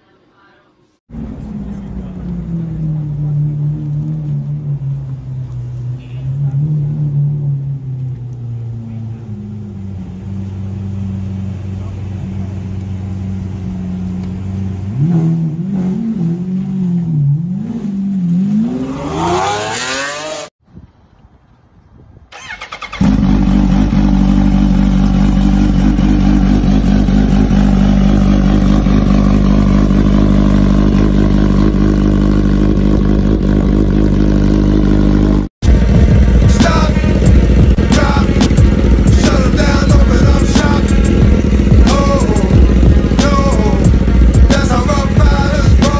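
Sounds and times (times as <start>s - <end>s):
car engine revving: 1.1s - 20.5s, 22.4s - 45.9s
motorcycle engine running loudly: 23.0s - 45.9s.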